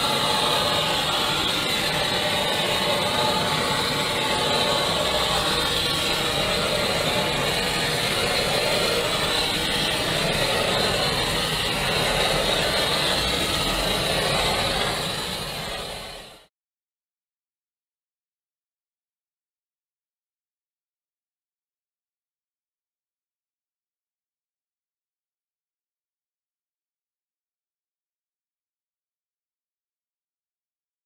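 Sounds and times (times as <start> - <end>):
blowtorch flame hissing: 0.0 - 16.5.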